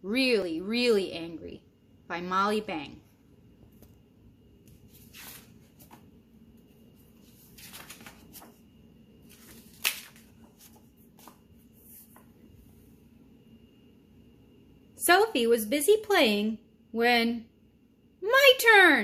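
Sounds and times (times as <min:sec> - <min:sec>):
book pages rustling: 0:04.6 - 0:12.6.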